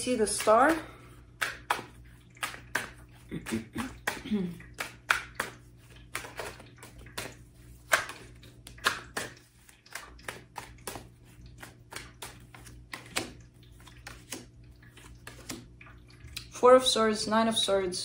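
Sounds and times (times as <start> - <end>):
cards being shuffled: 4.8 - 15.6.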